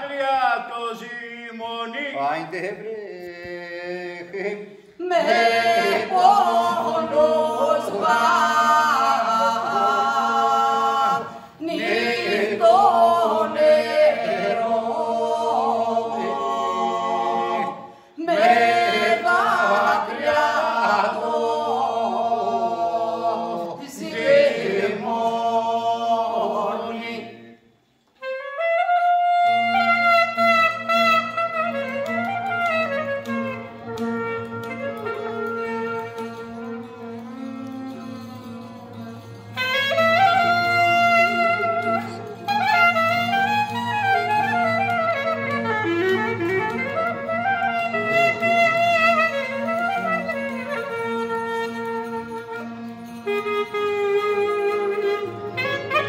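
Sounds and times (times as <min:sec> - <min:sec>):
voices singing folk song: 0:00.6 - 0:28.2
clarinet: 0:04.2 - 0:56.0.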